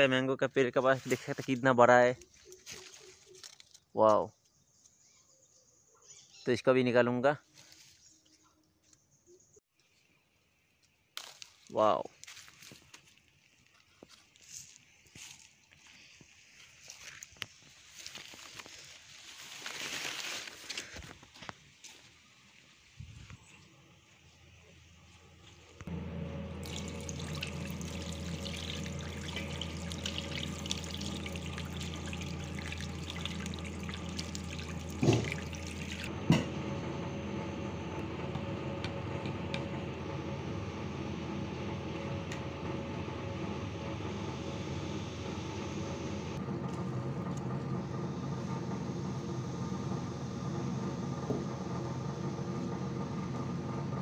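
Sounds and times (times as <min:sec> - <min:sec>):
low hum: 0:23.2 - 0:54.0
tap water running and splashing: 0:26.6 - 0:36.1.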